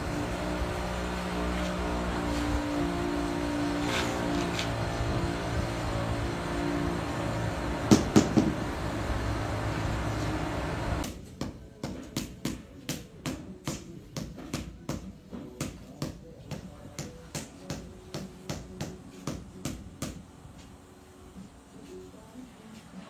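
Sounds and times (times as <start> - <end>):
machine hum: 0.0 - 11.0
sharp knocks: 7.9 - 8.6.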